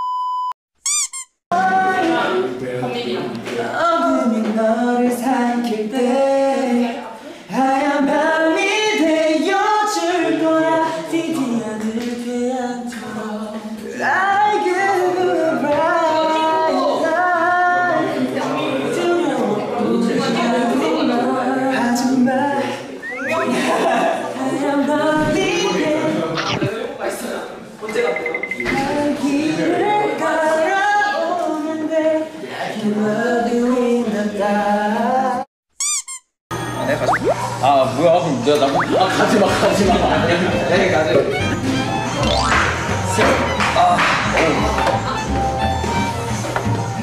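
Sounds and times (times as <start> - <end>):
men singing a cappella: 3.6 - 26.6, 28.7 - 35.5.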